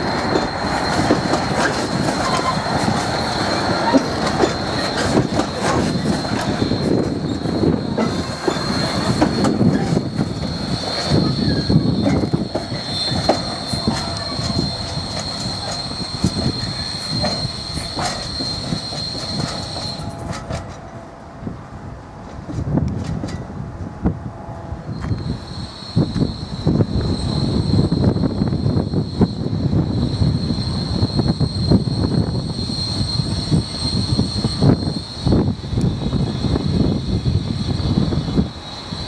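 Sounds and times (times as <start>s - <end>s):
high wheel squeal: 0.0s - 21.0s, 24.9s - 39.0s
train wheels clattering: 0.0s - 21.1s.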